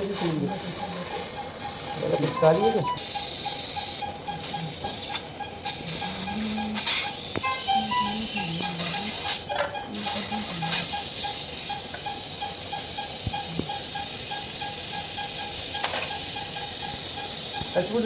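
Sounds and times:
quick electronic beeping: 0.0 - 18.0
surgical suction hissing: 10.0 - 18.0.

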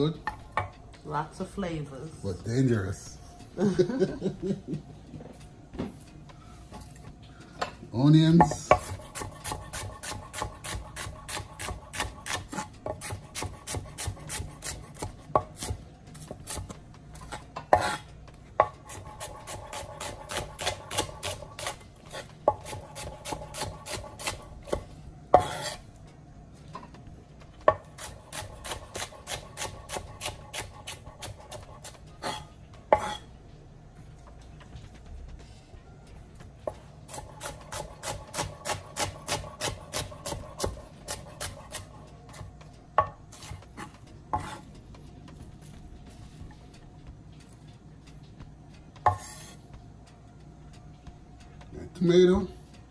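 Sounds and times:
knife tapping cutting board: 49.0 - 49.4.

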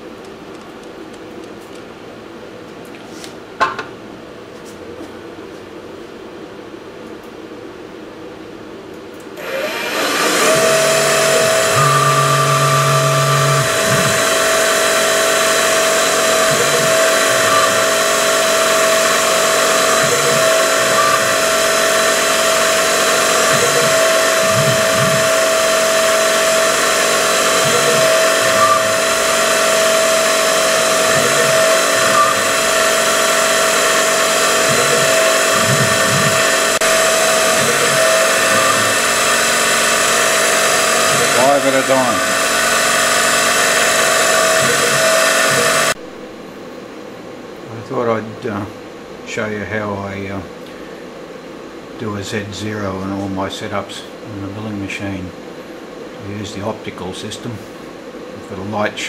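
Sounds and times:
mill spindle high whine: 3.5 - 59.0
low hum: 10.2 - 39.4.

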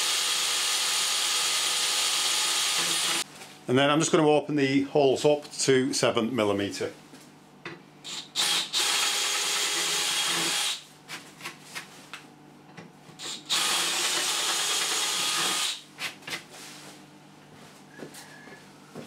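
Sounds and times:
cordless drill boring metal: 0.0 - 3.2, 8.0 - 10.8, 13.2 - 15.8.

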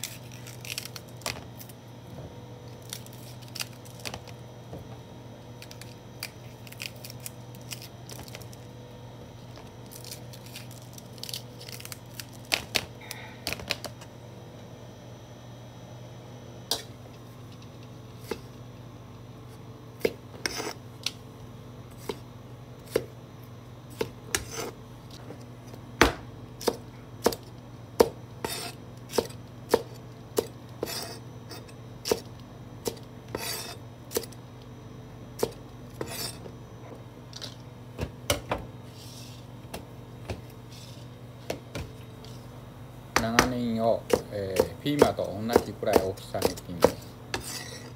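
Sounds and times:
knife chopping on cutting board: 22.8 - 23.1, 23.9 - 24.7, 26.0 - 34.3, 43.2 - 47.9.

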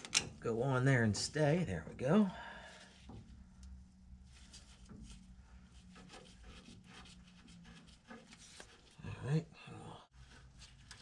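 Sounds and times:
small clicks and rubbing: 3.0 - 9.0, 10.2 - 11.0.

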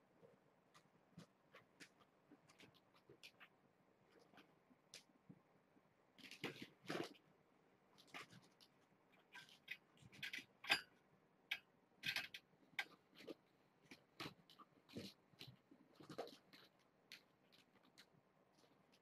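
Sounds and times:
kittens' claws scratching carpet: 0.7 - 5.1, 7.9 - 10.7, 12.0 - 19.0.

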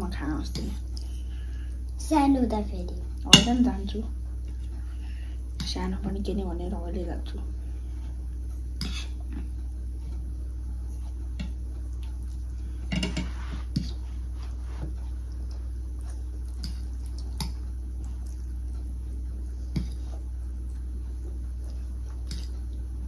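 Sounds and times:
low hum: 0.0 - 23.0
cutlery clinking on a plate: 12.9 - 13.3
eating noises: 15.1 - 19.0.

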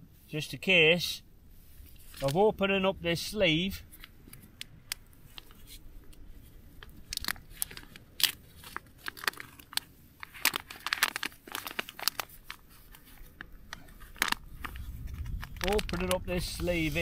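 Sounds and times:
pouch packaging crinkling and tearing: 1.9 - 2.4, 3.9 - 17.0.

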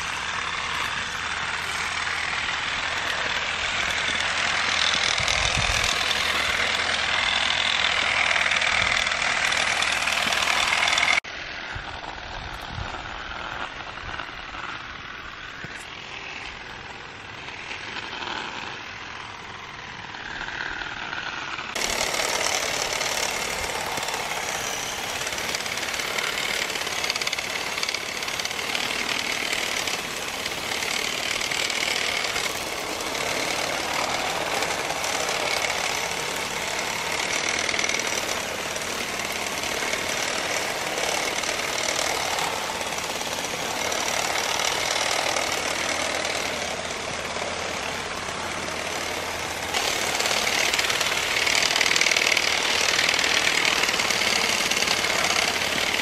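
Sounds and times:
motorized olive rake running: 0.0 - 56.0.

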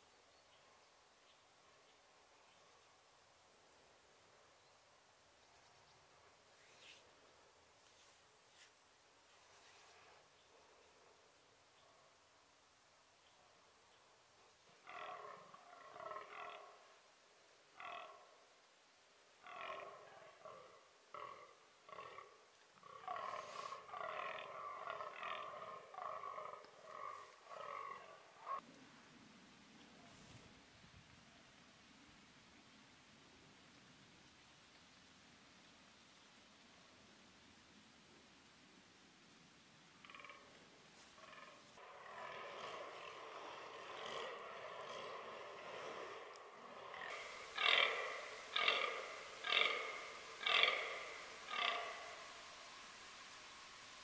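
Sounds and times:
deer buck groaning: 14.8 - 16.7, 19.4 - 28.6, 41.2 - 52.6.

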